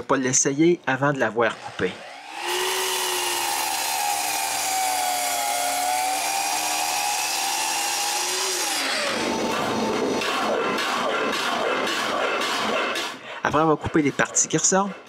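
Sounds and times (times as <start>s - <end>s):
power tool cutting wood: 1.4s - 13.2s.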